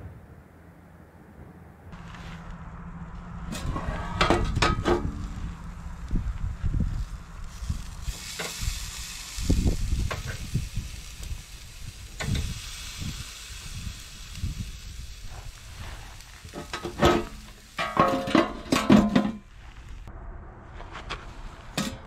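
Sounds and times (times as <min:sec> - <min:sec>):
chicken sizzling on a grill: 0:03.6 - 0:18.4.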